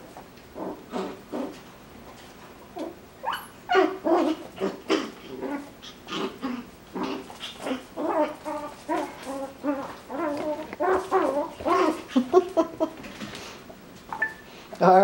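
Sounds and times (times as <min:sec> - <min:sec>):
puppies yipping and growling: 0:02.8 - 0:12.9.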